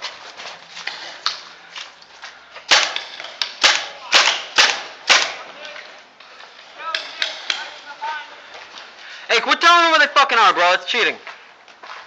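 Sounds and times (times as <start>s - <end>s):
paintball pistol firing: 2.7s - 5.5s.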